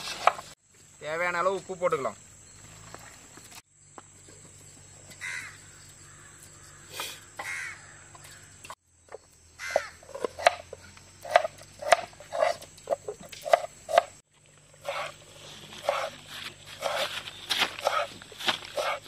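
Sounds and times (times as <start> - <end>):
crows cawing: 5.2 - 8.6, 9.6 - 10.0.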